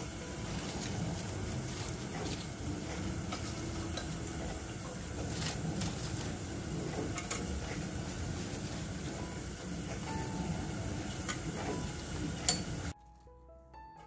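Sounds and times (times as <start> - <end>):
oil sizzling while deep-frying: 0.0 - 13.0
crackling pops of frying: 11.0 - 13.0.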